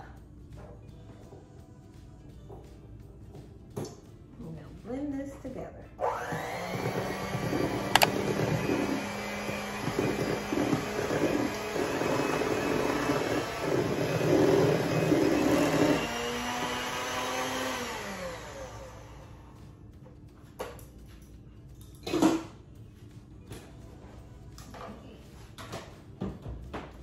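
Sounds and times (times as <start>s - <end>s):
electric hand mixer whirring: 6.0s - 19.6s.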